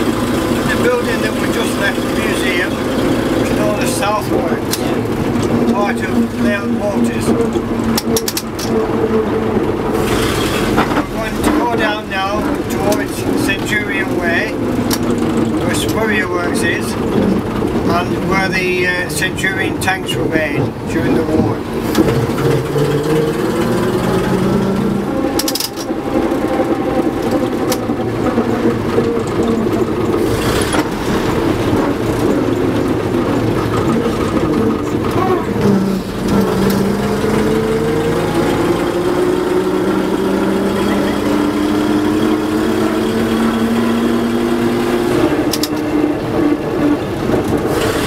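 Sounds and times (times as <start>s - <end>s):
bus engine running: 0.0s - 48.0s
sharp clatters: 21.8s - 36.9s.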